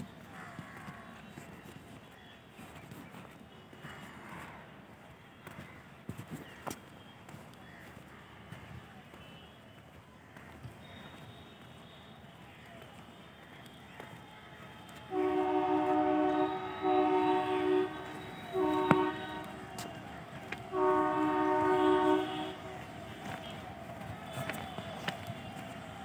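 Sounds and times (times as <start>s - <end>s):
two-tone locomotive air horn: 15.1s - 26.0s.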